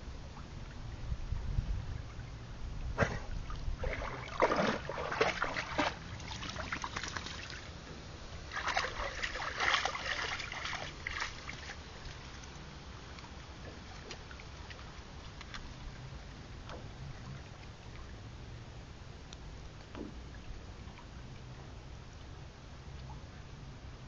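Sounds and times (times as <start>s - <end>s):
dog splashing through water: 3.0s - 7.7s, 8.5s - 12.5s.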